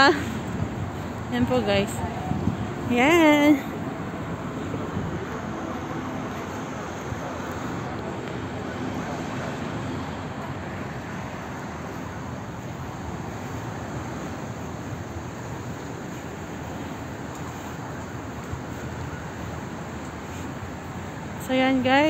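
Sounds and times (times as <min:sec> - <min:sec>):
rushing noise: 0:00.0 - 0:21.4.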